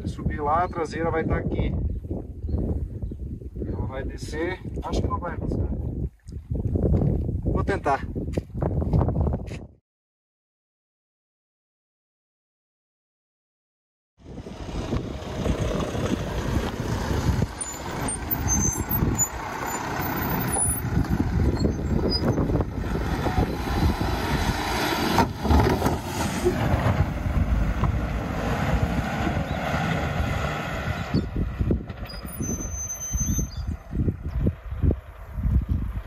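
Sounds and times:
diesel engine under load: 14.2 - 35.2.

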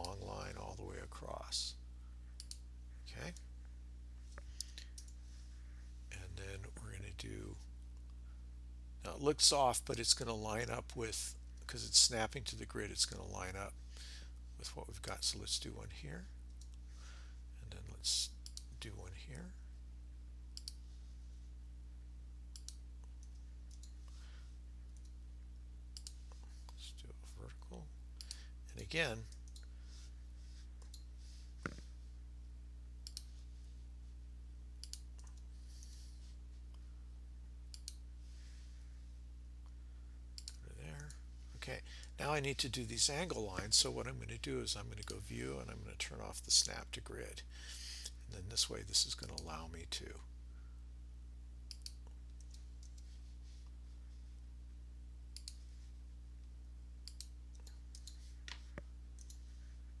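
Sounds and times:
low electrical hum: 0.0 - 60.0
computer mouse clicking: 22.5 - 24.0, 26.0 - 26.4, 33.0 - 33.3, 34.8 - 35.9, 37.7 - 38.0, 51.7 - 53.1, 55.4 - 55.6, 57.0 - 59.4.

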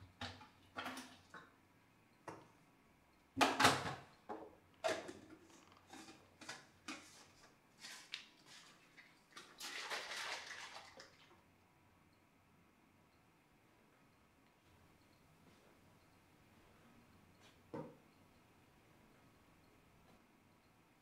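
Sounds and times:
kitchen items knocking and clinking: 3.4 - 7.0.

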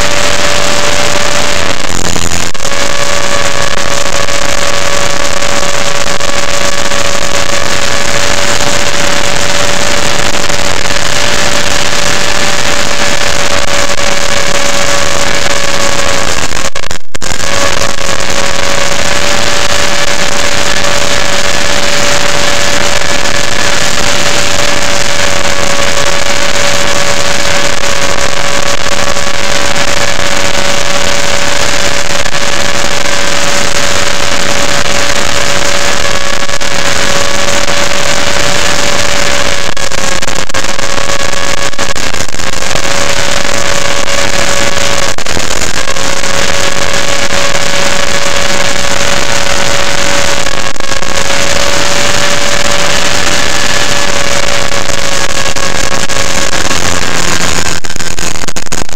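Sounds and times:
rc helicopter whine: 0.0 - 58.9
wind and rotor-wash noise: 17.5 - 39.6, 51.2 - 54.7.

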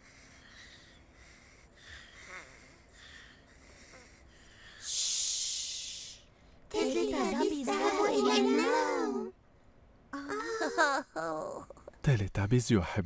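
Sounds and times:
soft sleeping breaths and snores: 0.0 - 6.3
breathy shushing: 3.0 - 6.6.

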